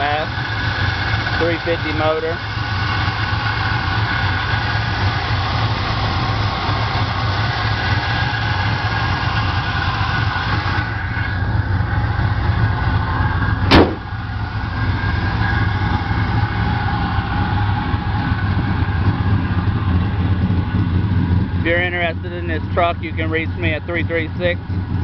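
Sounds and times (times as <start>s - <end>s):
truck engine idling: 0.0s - 25.0s
sharp knock: 13.7s - 14.1s.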